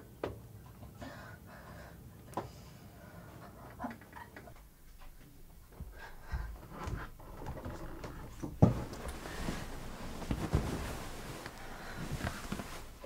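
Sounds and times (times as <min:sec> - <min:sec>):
rustles and knocks of person moving: 0:04.0 - 0:13.0.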